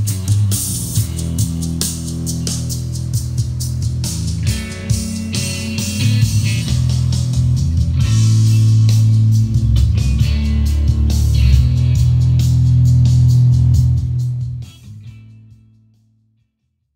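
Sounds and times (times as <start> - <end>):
rock music over loudspeakers: 0.0 - 15.6.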